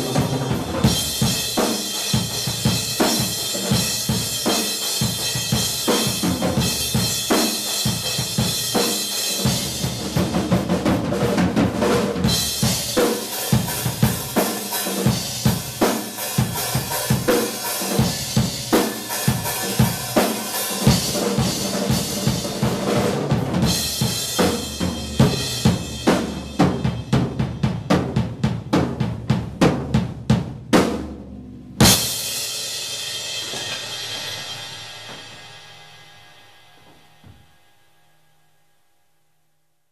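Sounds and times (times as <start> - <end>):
fast drum fill: 0.0 - 37.9
cymbal crash ringing: 31.8 - 39.0.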